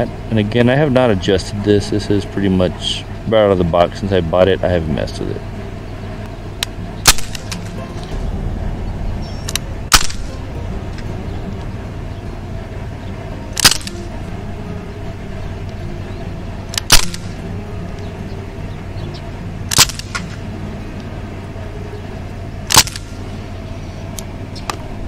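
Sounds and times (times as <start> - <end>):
steady background hum: 0.0 - 25.0
bb rifle shots cracking: 6.6 - 7.8, 9.5 - 10.3, 13.6 - 14.1, 16.7 - 17.4, 19.7 - 20.4, 22.7 - 23.2.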